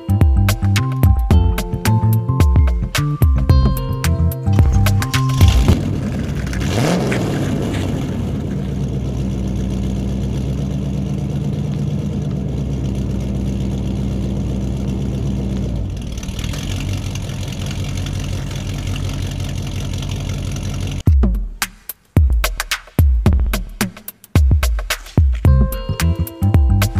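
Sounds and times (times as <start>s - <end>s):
vehicle engine running: 0.0s - 21.0s.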